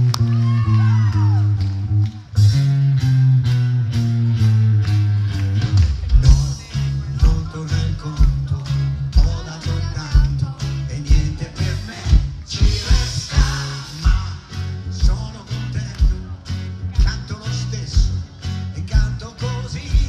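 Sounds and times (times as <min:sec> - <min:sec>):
live pop band playing: 0:00.0 - 0:20.0
man singing into a microphone: 0:06.2 - 0:20.0.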